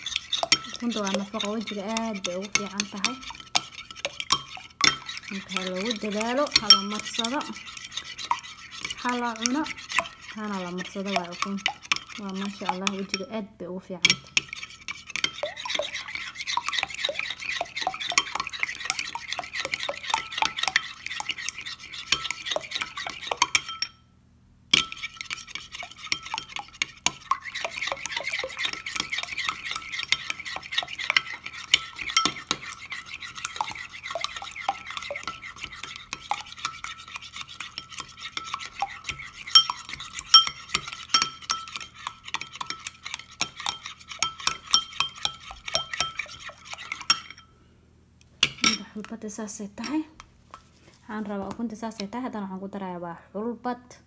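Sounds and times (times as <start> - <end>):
metal spoon stirring in glass bowl: 0.0 - 13.4, 14.0 - 24.0, 24.7 - 47.5, 48.4 - 52.2
spoon clinking on glass: 0.1 - 1.5, 2.1 - 7.5, 22.1 - 24.0, 27.7 - 36.8, 37.7 - 47.5, 48.4 - 49.0.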